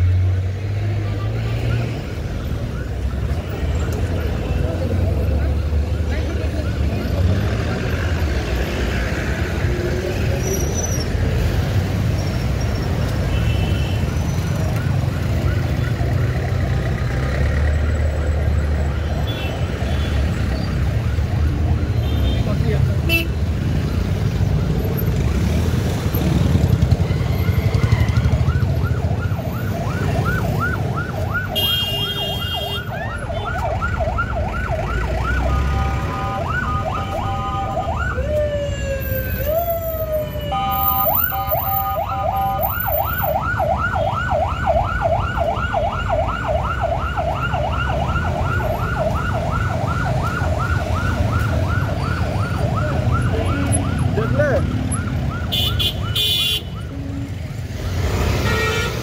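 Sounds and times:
emergency siren yelping: 0:01.2 - 0:08.7, 0:14.3 - 0:17.3, 0:20.2 - 0:22.1, 0:25.8 - 0:57.8.

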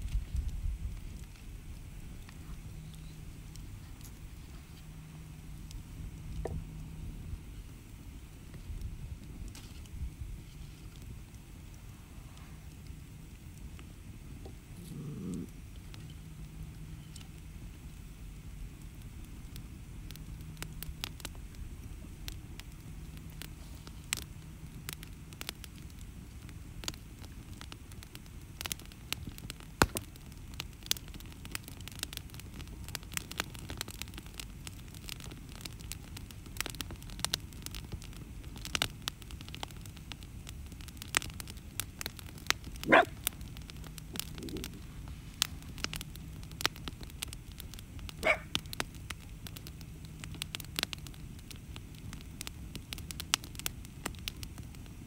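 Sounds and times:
campfire crackling and popping: 0:00.0 - 0:55.0
dog barking: 0:42.9 - 0:43.2, 0:48.2 - 0:48.5.

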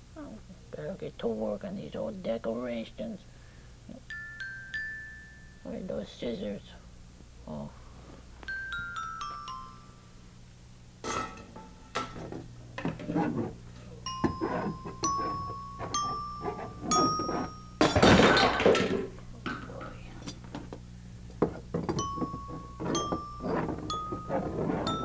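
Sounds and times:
glockenspiel-like notes: 0:04.1 - 0:05.7, 0:08.5 - 0:10.2, 0:14.0 - 0:17.8, 0:21.9 - 0:25.0
clattering knocks and rattles: 0:17.8 - 0:19.6, 0:21.4 - 0:25.0.

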